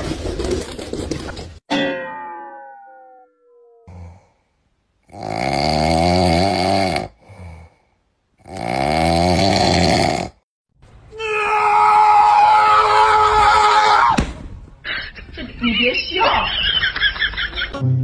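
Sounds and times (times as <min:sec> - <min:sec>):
person snoring: 0:03.9 - 0:10.4.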